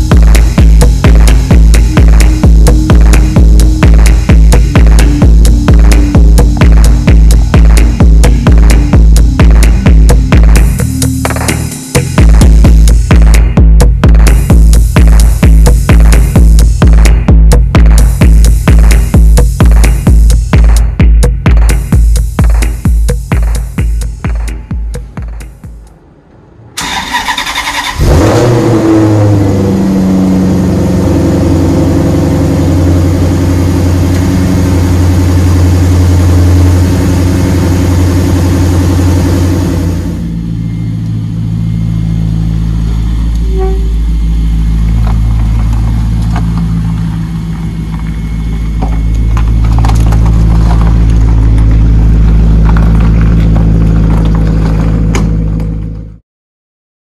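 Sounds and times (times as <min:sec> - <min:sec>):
car engine revving and idling: 0:00.0 - 0:56.2.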